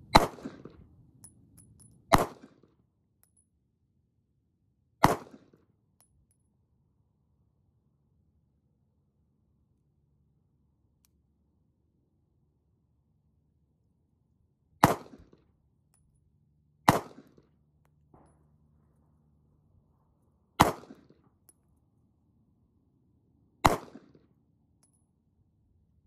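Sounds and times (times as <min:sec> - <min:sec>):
pistol shots with echo: 0:00.1 - 0:00.8, 0:02.1 - 0:02.5, 0:05.0 - 0:05.5, 0:14.8 - 0:15.2, 0:16.9 - 0:17.4, 0:20.6 - 0:21.1, 0:23.6 - 0:24.2.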